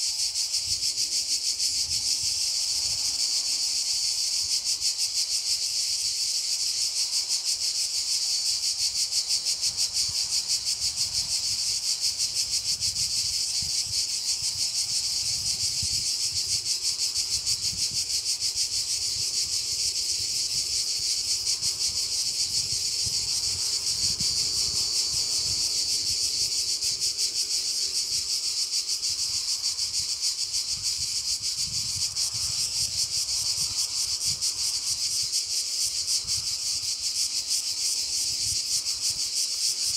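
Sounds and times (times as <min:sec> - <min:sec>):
insects shrilling: 0:00.0 - 0:39.9.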